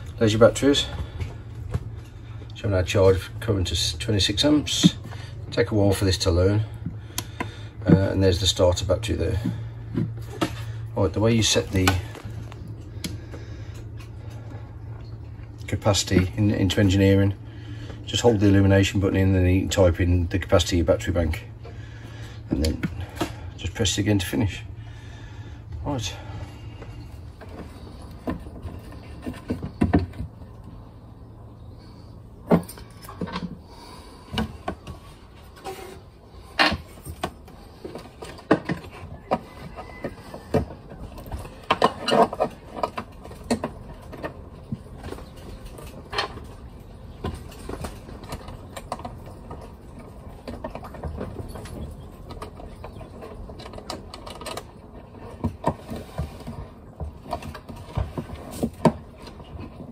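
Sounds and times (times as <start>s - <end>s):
low hum: 0.0s - 39.0s.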